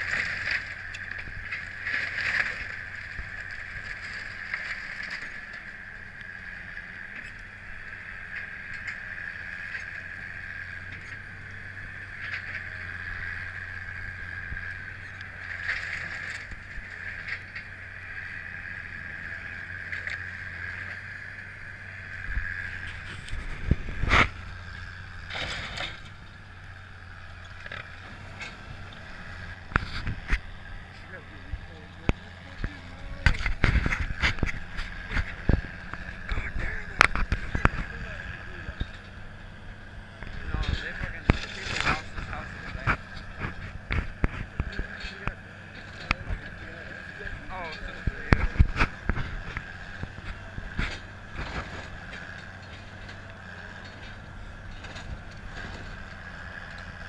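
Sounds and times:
excavator engine whining: 0:00.0 - 0:57.0.

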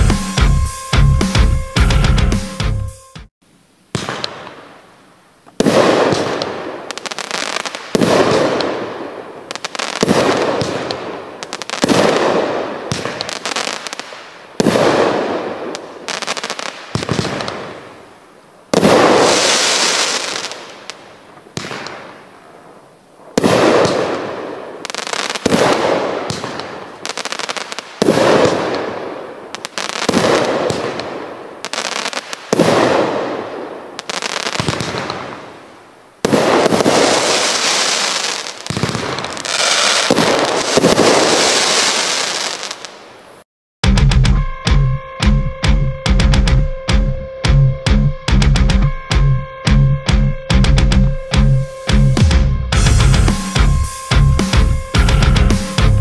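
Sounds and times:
firework bangs: 0:03.9 - 0:04.8, 0:05.6 - 0:18.1, 0:18.7 - 0:43.1
crackling firework hiss: 0:03.9 - 0:43.4.

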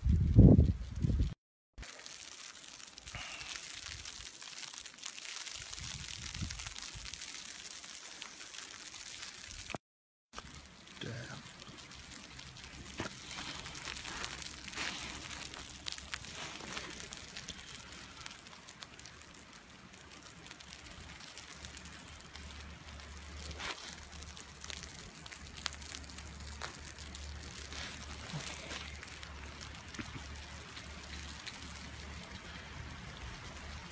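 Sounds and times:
wind noise on microphone: 0:00.0 - 0:01.4, 0:05.6 - 0:07.2.

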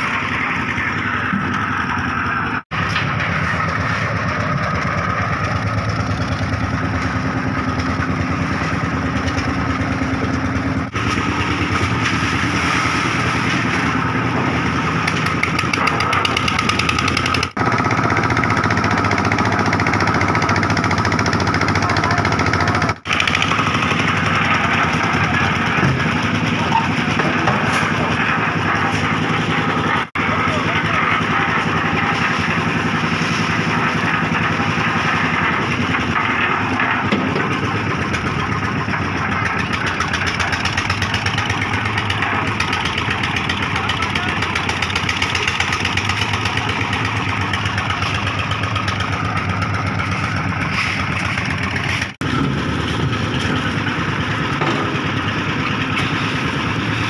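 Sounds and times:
concrete mixer engine running: 0:00.0 - 0:57.0
gravel loaded into hopper: 0:02.8 - 0:15.0, 0:23.6 - 0:44.7, 0:45.3 - 0:57.0.

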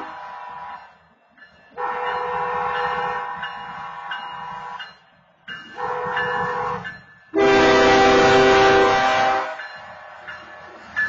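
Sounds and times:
locomotive air horn blasts: 0:00.0 - 0:00.8, 0:01.8 - 0:04.8, 0:05.8 - 0:06.8, 0:07.4 - 0:09.6
low rumble of train: 0:00.0 - 0:11.0.

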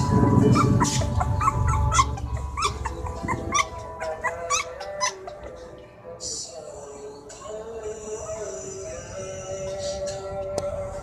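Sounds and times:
puppy whimpering: 0:00.0 - 0:05.6.

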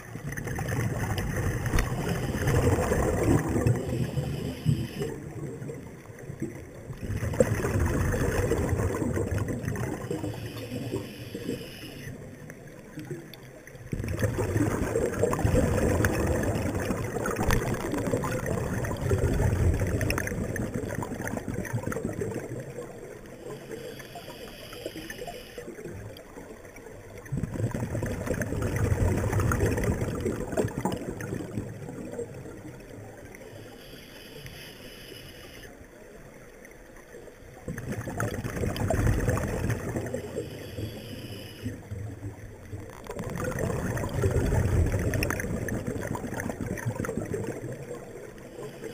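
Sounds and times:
bubbling exhaled air underwater: 0:00.0 - 0:33.9, 0:37.5 - 0:48.9
regulator inhalation hiss: 0:03.9 - 0:05.2, 0:10.2 - 0:12.2, 0:23.4 - 0:25.7, 0:33.5 - 0:35.7, 0:40.2 - 0:41.7.

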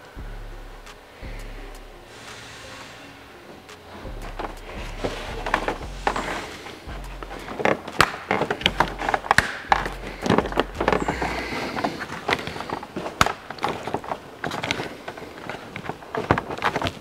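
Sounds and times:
paper crinkling and rustling: 0:03.9 - 0:17.0.

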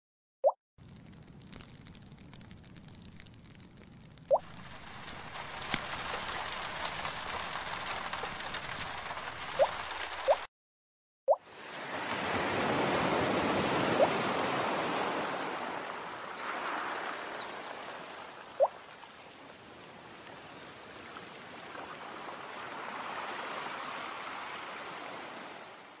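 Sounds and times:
sea waves washing: 0:04.3 - 0:10.5, 0:11.4 - 0:26.0.

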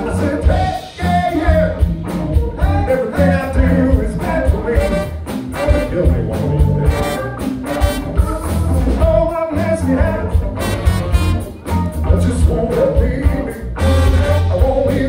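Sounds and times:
lead singer singing: 0:00.0 - 0:07.1, 0:08.2 - 0:11.0, 0:11.9 - 0:15.0
bass guitar: 0:00.0 - 0:15.0
drums: 0:00.0 - 0:15.0
electric guitar: 0:00.0 - 0:15.0
trumpet: 0:04.5 - 0:09.7, 0:10.3 - 0:12.0, 0:13.1 - 0:15.0
saxophone: 0:04.6 - 0:12.1, 0:13.1 - 0:15.0.

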